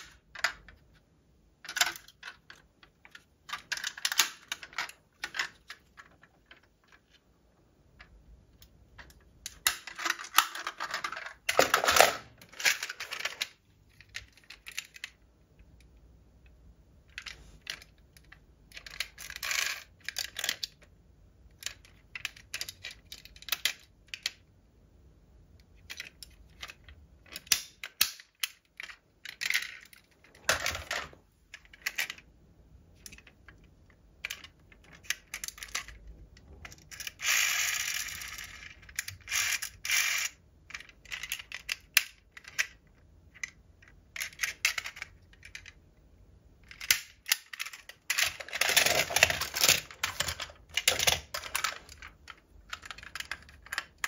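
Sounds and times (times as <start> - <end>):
metal toy cars clicking: 17.1 - 20.9, 21.5 - 24.4, 25.7 - 32.2, 33.0 - 45.8, 46.6 - 54.0.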